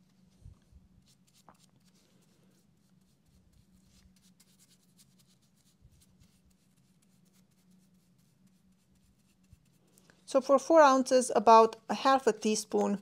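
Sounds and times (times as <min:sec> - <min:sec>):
paintbrush strokes on wood: 0:00.0 - 0:10.4
low steady hum: 0:00.0 - 0:13.0.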